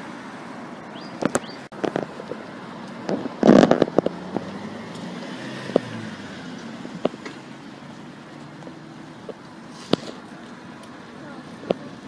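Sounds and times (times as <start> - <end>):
car driving past: 3.4 - 10.2.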